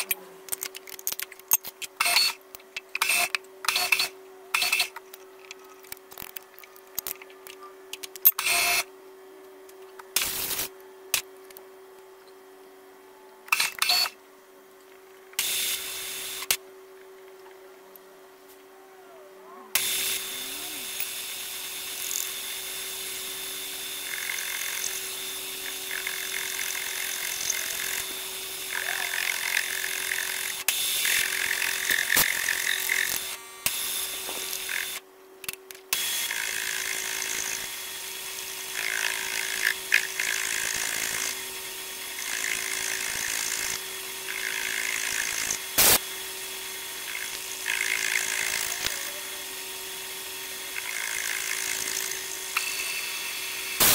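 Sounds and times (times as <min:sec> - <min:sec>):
milling spindle humming: 0:19.0 - 0:35.0, 0:35.9 - 0:53.9
cutter milling metal: 0:19.8 - 0:35.0, 0:35.9 - 0:53.9.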